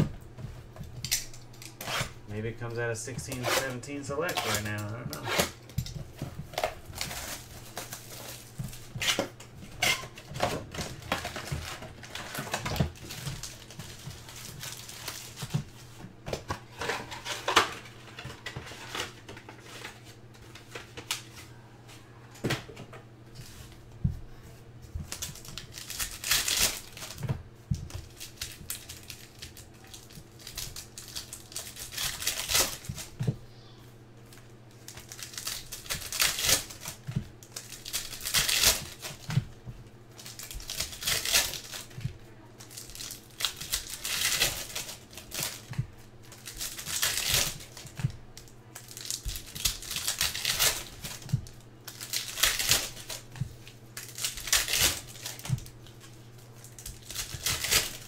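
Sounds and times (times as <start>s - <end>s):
low electrical hum: 0.0s - 58.0s
wrapper crinkling and tearing: 0.9s - 16.0s, 25.0s - 33.2s, 34.3s - 58.0s
cards being handled and slid: 3.0s - 5.6s.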